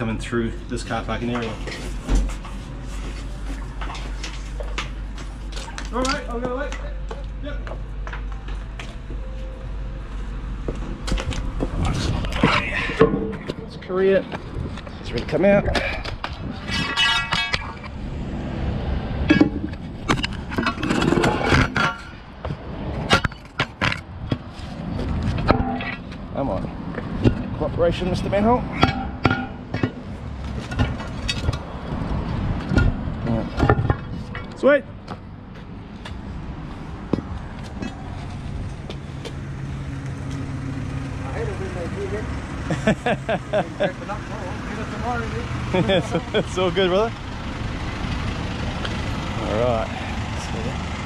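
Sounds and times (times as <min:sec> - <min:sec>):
steady low rumble: 0:00.0 - 0:40.3
footsteps on asphalt: 0:02.2 - 0:12.4, 0:35.0 - 0:40.5
metal bar knocking and clinking: 0:16.7 - 0:17.9
van engine running: 0:34.9 - 0:51.0.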